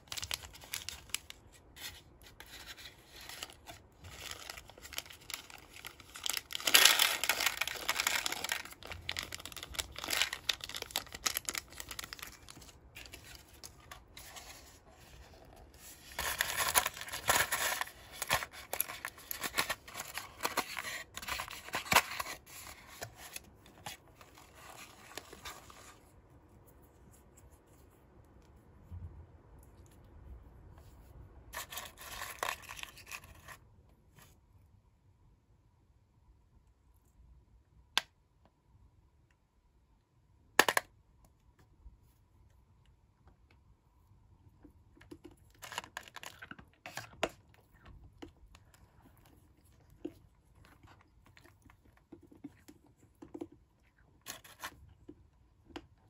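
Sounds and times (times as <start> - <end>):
foil sachet tearing and crinkling: 0.0 - 1.4, 3.0 - 13.2, 16.0 - 22.5, 31.6 - 33.2.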